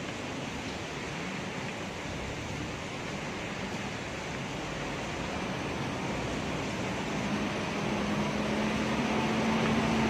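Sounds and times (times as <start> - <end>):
rain and tyres on wet road: 0.0 - 10.0
vehicle engine hum: 2.4 - 10.0.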